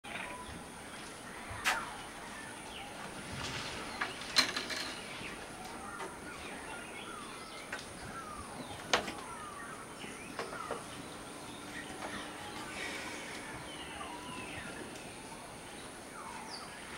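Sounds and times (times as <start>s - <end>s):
birds chirping: 0.0s - 16.9s.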